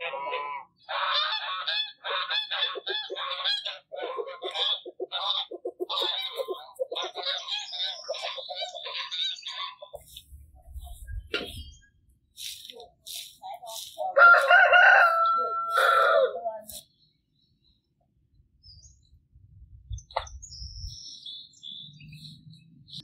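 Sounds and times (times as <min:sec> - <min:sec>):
geese honking: 0:00.0 - 0:09.9, 0:13.2 - 0:16.4.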